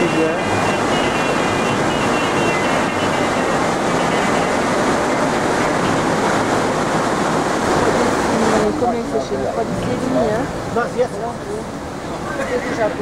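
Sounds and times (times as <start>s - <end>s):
river rushing: 0.0s - 13.0s.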